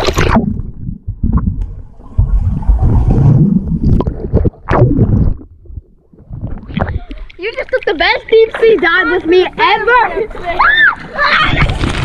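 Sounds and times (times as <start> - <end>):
muffled underwater bubbling: 0.0 - 8.5.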